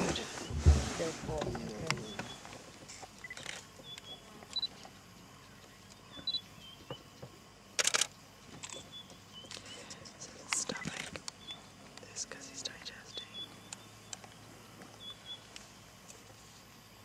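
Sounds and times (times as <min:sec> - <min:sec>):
camera shutter clicks: 0:07.8 - 0:08.8.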